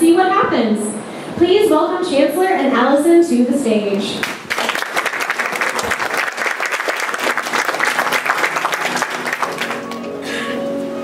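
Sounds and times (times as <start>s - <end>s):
audience applauding: 4.2s - 10.3s
music with held notes: 7.2s - 11.0s.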